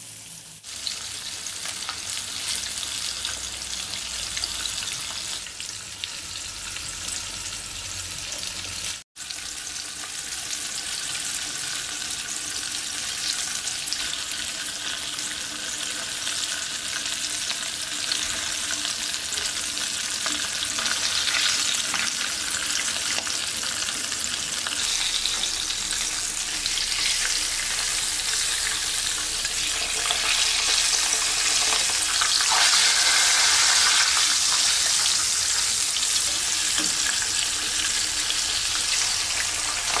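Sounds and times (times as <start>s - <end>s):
fish frying in sizzling oil: 0.0s - 40.0s.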